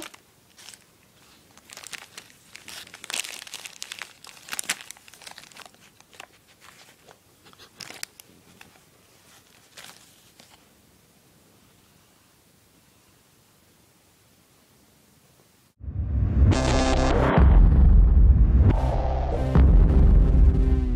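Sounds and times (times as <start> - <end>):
plastic wrapper crinkling: 0.0 - 10.7.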